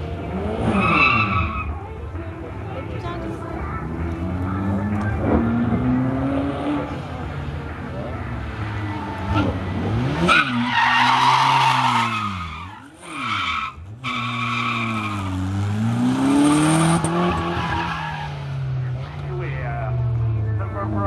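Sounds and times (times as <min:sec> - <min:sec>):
car engine revving: 0:00.0 - 0:01.8, 0:03.6 - 0:21.0
tyres squealing: 0:10.3 - 0:15.4.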